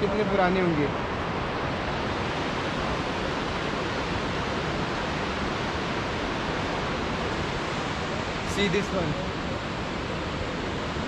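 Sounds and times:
river water roaring: 0.0 - 11.0.

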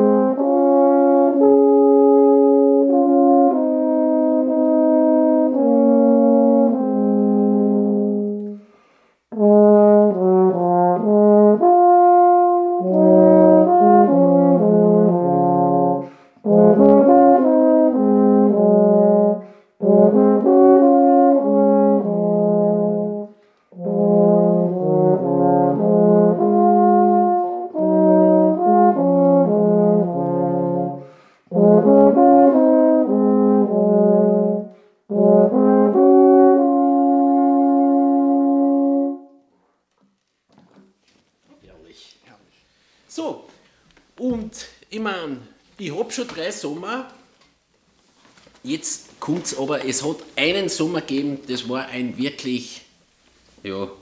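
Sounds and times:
tenor horns duet: 0.0 - 39.7.

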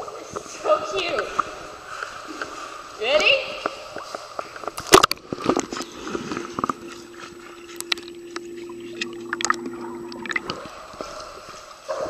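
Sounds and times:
steady underwater hum: 0.0 - 12.0
bubbly underwater clicks: 3.6 - 11.8.

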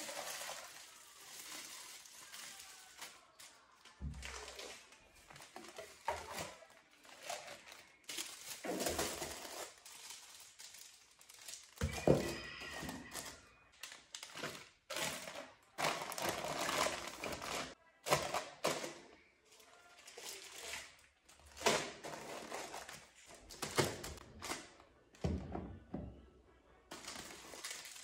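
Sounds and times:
packaging rustling and crinkling: 0.0 - 3.6, 4.2 - 17.8, 26.9 - 28.0.

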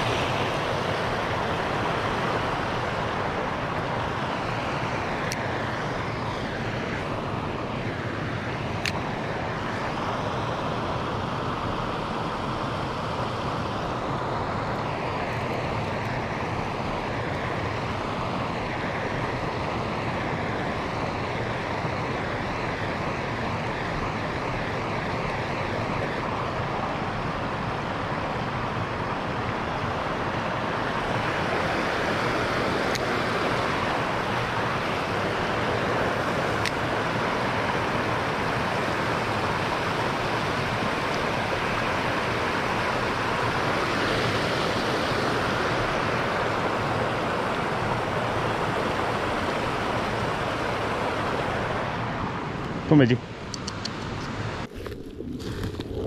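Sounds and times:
creek water rushing: 0.0 - 56.0
faint sharp clicks: 53.5 - 54.4.

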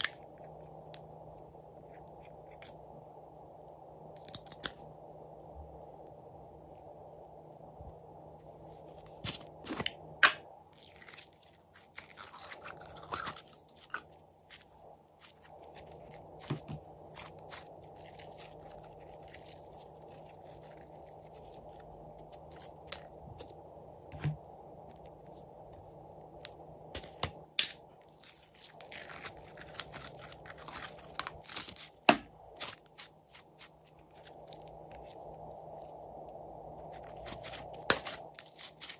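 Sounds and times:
sticky slime crackling: 10.8 - 23.0, 28.2 - 35.2.

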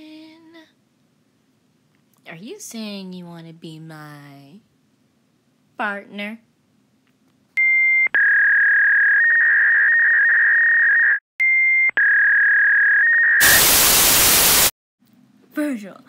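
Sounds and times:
dial-up modem beeping tones: 7.6 - 14.0
modem hiss burst: 13.4 - 14.7.

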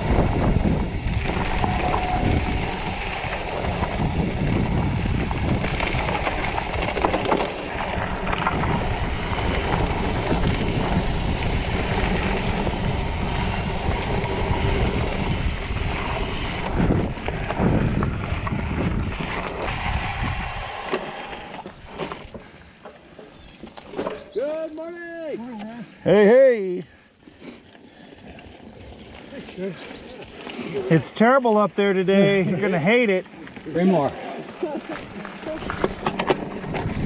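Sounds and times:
wind on microphone: 0.0 - 22.0, 35.4 - 37.0
bike rattling over rocks: 0.0 - 24.7, 28.2 - 37.0.

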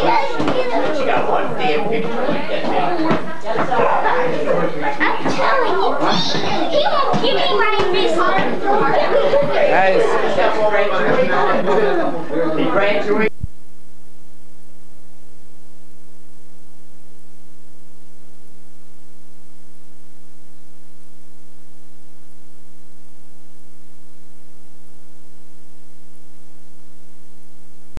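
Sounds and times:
tape hiss: 13.2 - 28.0.

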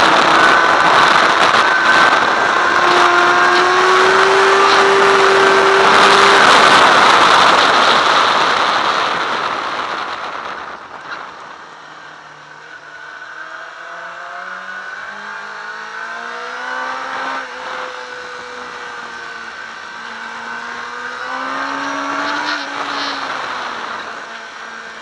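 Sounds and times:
wind rush on microphone: 0.0 - 12.4
motorcycle engine accelerating: 0.0 - 25.0.

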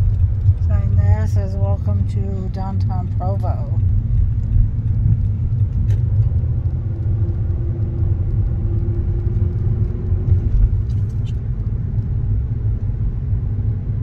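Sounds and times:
faint steady hum: 0.0 - 9.1
car driving rumble inside cabin: 0.0 - 14.0.

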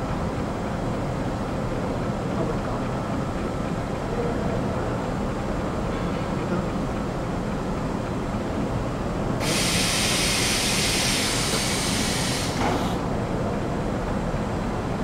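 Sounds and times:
compressed gas hissing: 9.4 - 13.0.

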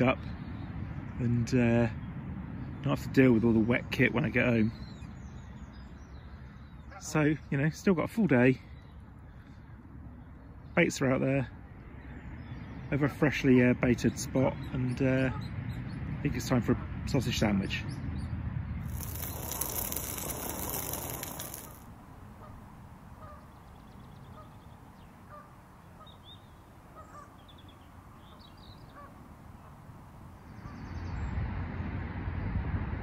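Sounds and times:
birds chirping and calling: 22.4 - 31.0.

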